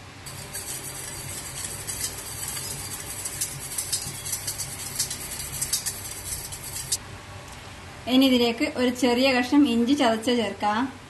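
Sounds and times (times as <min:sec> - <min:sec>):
whisk scraping metal bowl: 0:00.2 - 0:07.0.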